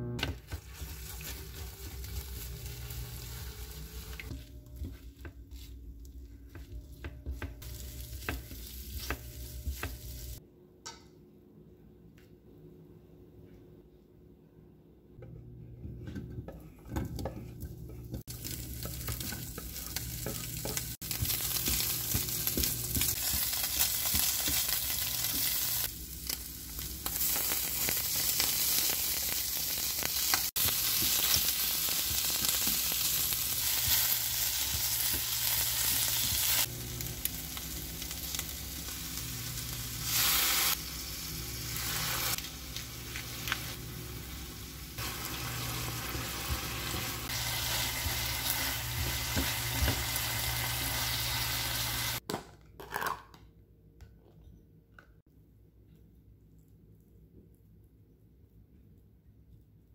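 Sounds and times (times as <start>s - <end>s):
meat and onion sizzling in pan: 0.4s - 4.4s, 6.9s - 10.4s, 18.1s - 52.2s.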